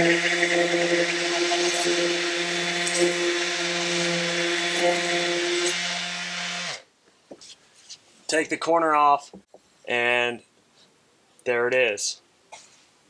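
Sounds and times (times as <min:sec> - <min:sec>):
orbital sander sanding: 0:00.0 - 0:06.7.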